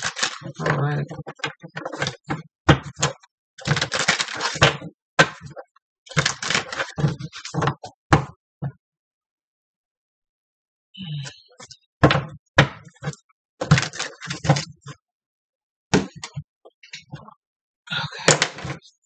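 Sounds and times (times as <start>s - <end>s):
cards shuffling: 0.0s - 0.8s.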